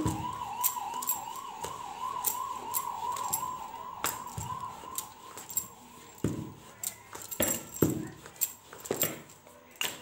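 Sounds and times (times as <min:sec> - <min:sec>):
siren wailing: 0:00.0 - 0:06.6
rolling pin knocking on dough: 0:06.2 - 0:06.7.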